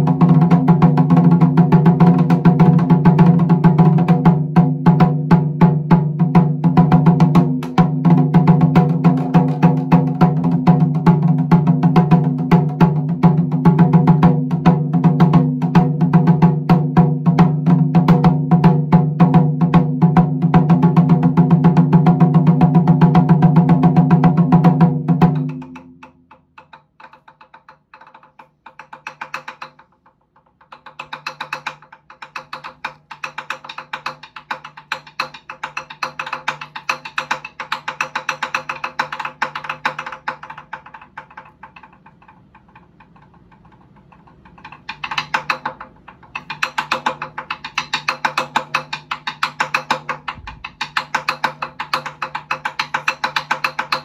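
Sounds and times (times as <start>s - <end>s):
taiko drums struck with sticks: 0.0s - 26.0s.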